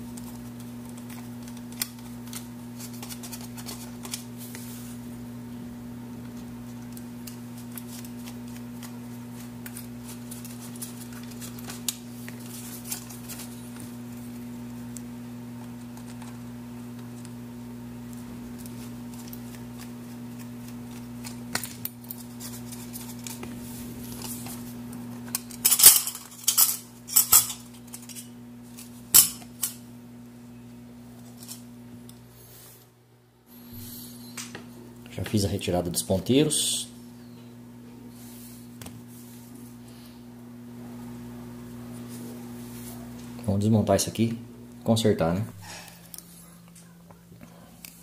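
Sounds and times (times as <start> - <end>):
low hum: 22.6 - 35.1.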